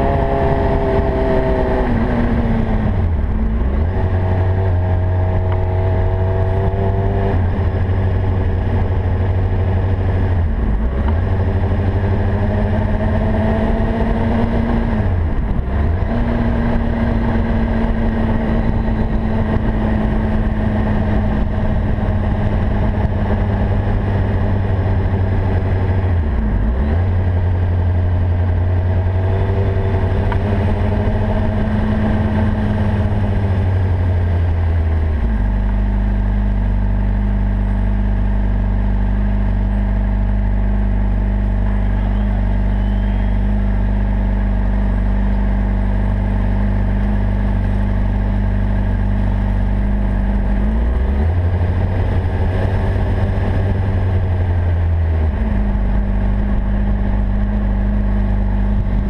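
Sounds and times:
wind noise: 0.0 - 35.7
motorcycle engine cruising: 0.0 - 59.0.

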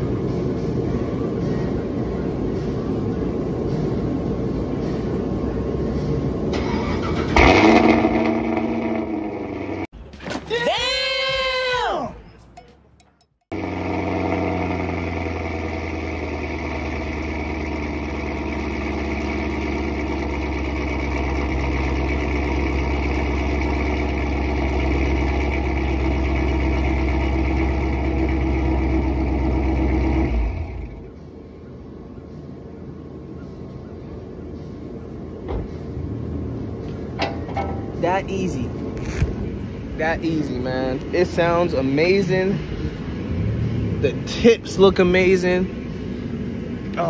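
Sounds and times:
car engine idling loud: 7.3 - 9.9, 13.5 - 31.2.

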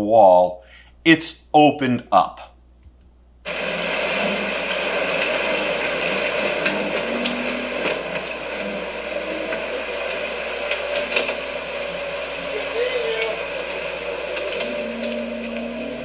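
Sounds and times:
boat motor running: 3.5 - 16.0.

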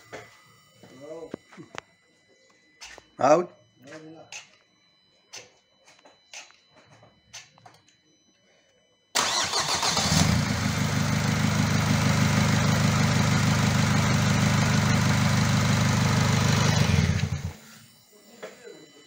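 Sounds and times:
diesel engine starting and idling: 9.2 - 17.6.

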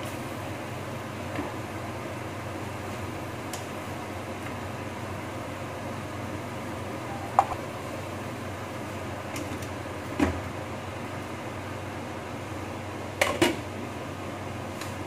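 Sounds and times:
steady low hum: 3.9 - 9.2.

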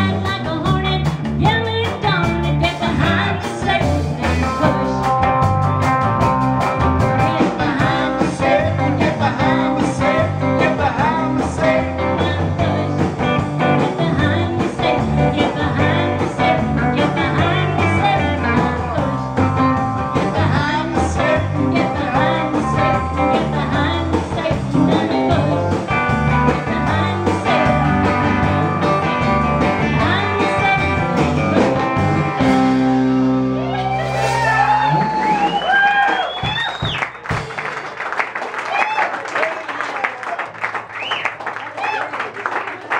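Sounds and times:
person singing: 0.0 - 5.4, 7.0 - 32.6
live country-rock band playing: 0.0 - 38.2.

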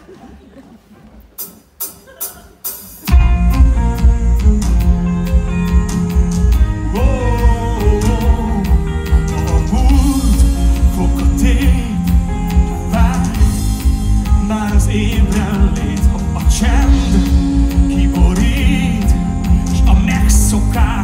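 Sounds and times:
live pop-rock band: 1.8 - 21.0
man singing lead vocal: 6.5 - 21.0.

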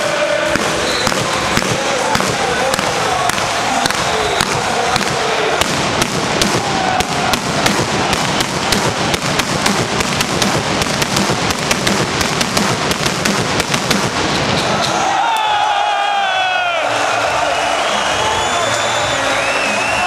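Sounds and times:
fireworks crackling and popping: 0.4 - 14.8.

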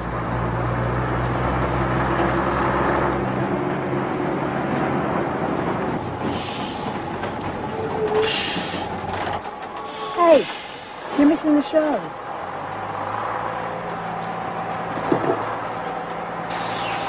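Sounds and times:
vehicle engine low hum: 0.0 - 9.8, 10.4 - 17.0
brief hiss: 16.5 - 17.0.

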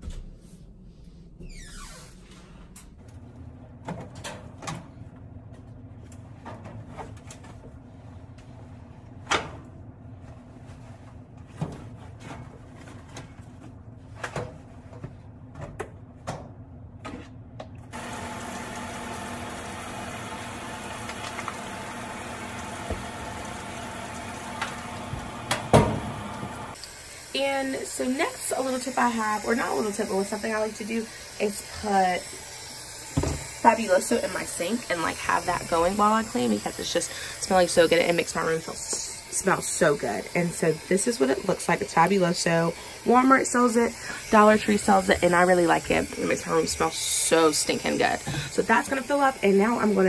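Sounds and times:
washing machine running: 2.3 - 50.0
knocks and clunks in washing machine: 22.6 - 26.7.

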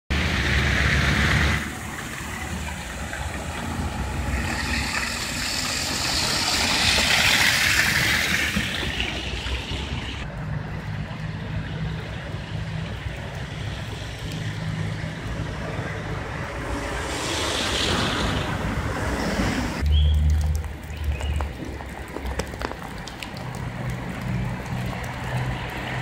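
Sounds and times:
car tyres hissing on wet snow: 0.2 - 10.1, 16.5 - 19.8.

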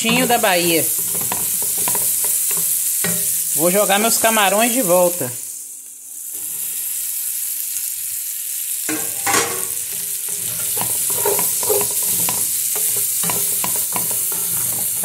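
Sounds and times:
food sizzling in oil: 0.0 - 15.0
spatula scraping pot: 9.0 - 15.0.

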